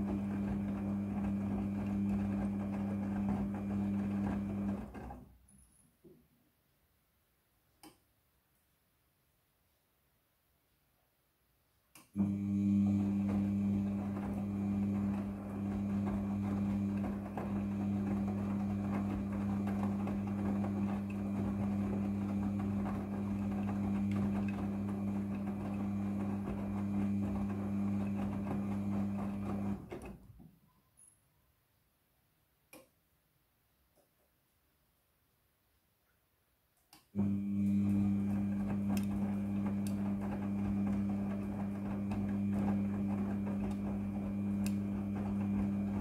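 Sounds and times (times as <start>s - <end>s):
washing machine drum motor humming: 0.0s - 5.2s, 12.2s - 30.4s, 37.2s - 46.0s
wet laundry tumbling: 0.0s - 5.3s, 12.2s - 30.4s, 37.2s - 46.0s.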